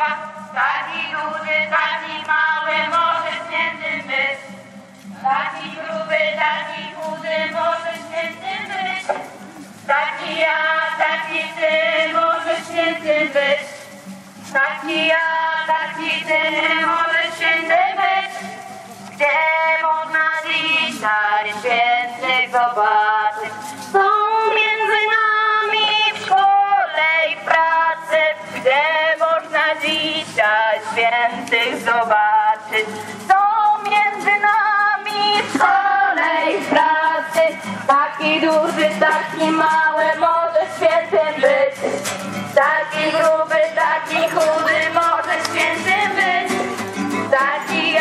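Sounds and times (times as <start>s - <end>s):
voices singing a religious song: 0.0s - 48.0s
musical accompaniment: 31.0s - 48.0s.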